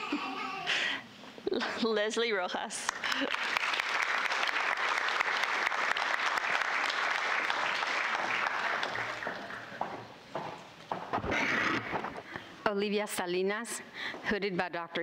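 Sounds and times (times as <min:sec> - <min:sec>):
audience applauding: 0:03.0 - 0:09.8.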